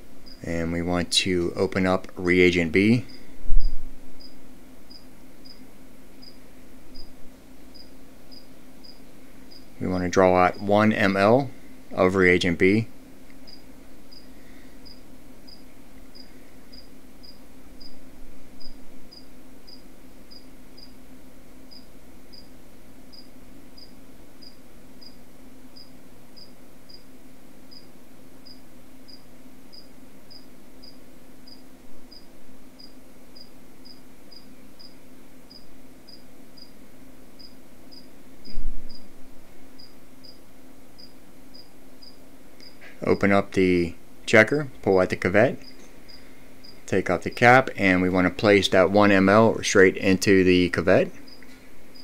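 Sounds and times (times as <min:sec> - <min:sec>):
cricket chirping: 0:00.2 - 0:00.4, 0:03.0 - 0:05.6, 0:06.2 - 0:09.7, 0:13.4 - 0:18.0, 0:18.6 - 0:21.0, 0:21.7 - 0:22.5, 0:23.1 - 0:25.2, 0:25.8 - 0:27.1, 0:27.7 - 0:36.8, 0:37.4 - 0:39.1, 0:39.8 - 0:40.4, 0:41.0 - 0:42.8, 0:45.6 - 0:47.6, 0:51.2 - 0:52.0.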